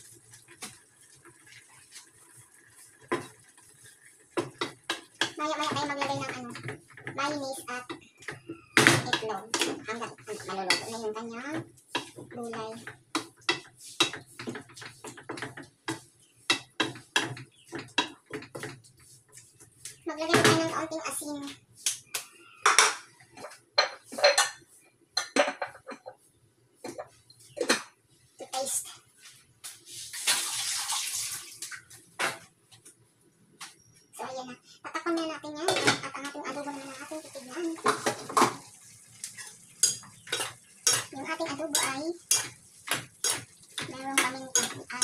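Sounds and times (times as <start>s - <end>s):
spoon scraping a cooking pot: 11.9s - 18.8s, 39.2s - 45.0s
spoon scraping metal pot: 39.3s - 45.0s.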